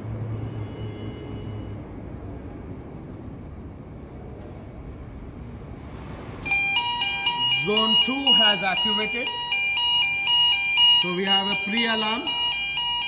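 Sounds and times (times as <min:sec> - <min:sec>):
fire alarm electronic tones: 0:06.4 - 0:13.0.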